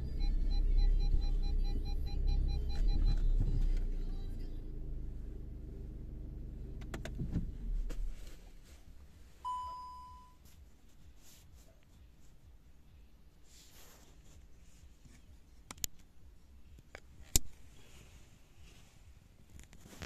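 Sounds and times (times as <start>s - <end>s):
low car engine rumble: 0.0s - 20.0s
short electronic beep: 9.4s - 10.4s.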